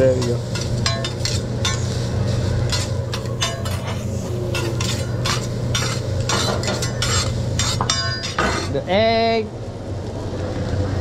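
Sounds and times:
metal spatulas scraping on griddle: 0.0s - 8.8s
low hum: 0.4s - 8.9s.

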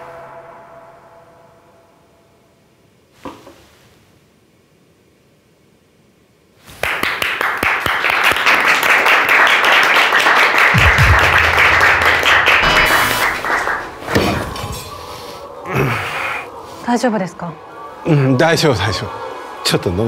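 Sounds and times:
people clapping: 6.7s - 14.5s.

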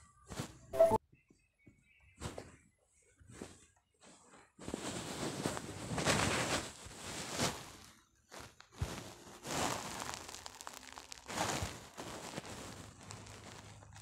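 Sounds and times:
rustling: 3.3s - 14.0s.

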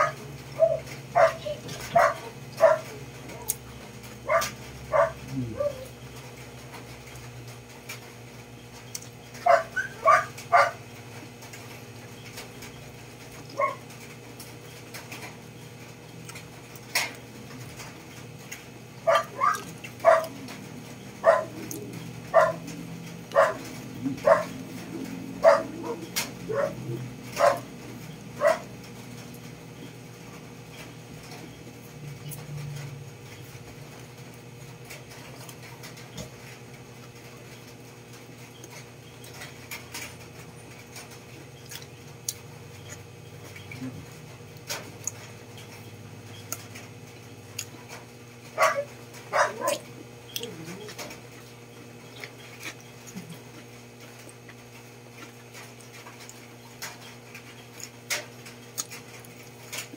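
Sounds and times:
animal yelping: 0.0s - 3.6s, 4.2s - 6.0s, 9.4s - 10.8s, 13.5s - 13.9s, 19.0s - 28.8s, 48.6s - 51.1s
steady low hum: 0.0s - 59.9s.

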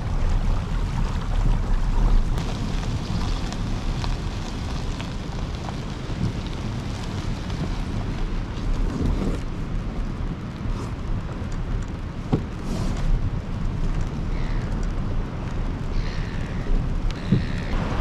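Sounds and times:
wind buffeting microphone: 0.0s - 18.0s
kayak dragged across sand: 12.5s - 13.3s.

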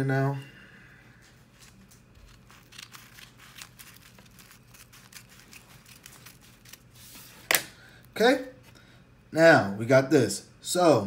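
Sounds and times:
paper crinkling: 1.4s - 8.1s
scissors snipping paper: 2.2s - 7.7s.

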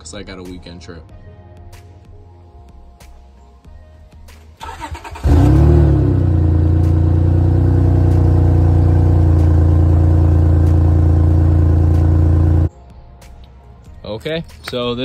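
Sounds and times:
car engine starting and idling: 4.6s - 12.7s.

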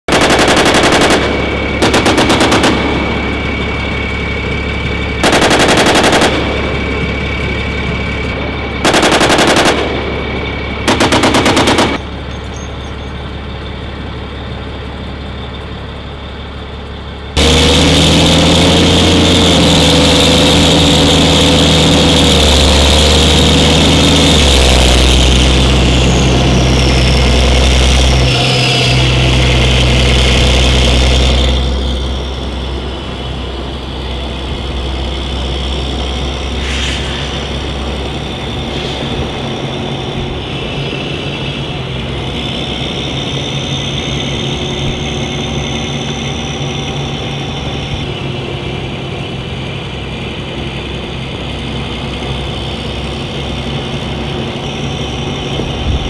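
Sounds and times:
vehicle diesel engine running: 0.0s - 56.0s
machine gun bursts: 0.1s - 3.4s, 5.2s - 7.0s, 8.8s - 10.3s, 10.9s - 12.0s.

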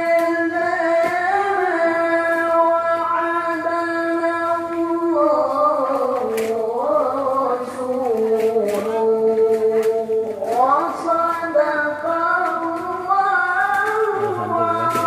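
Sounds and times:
person singing long notes: 12.1s - 15.0s.

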